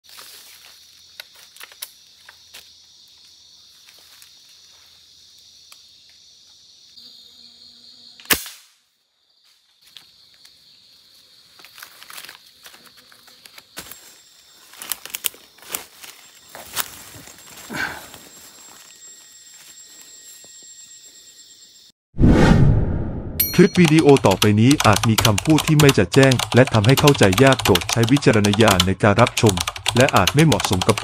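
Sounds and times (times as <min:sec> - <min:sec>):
insect chorus: 0:00.1 - 0:22.0
rustling through dry leaves: 0:13.9 - 0:19.0.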